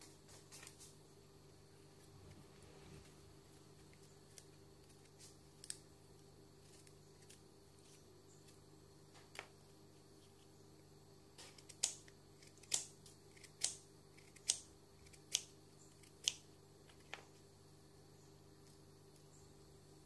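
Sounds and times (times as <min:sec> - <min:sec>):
knife cutting apple: 0:11.3 - 0:17.4.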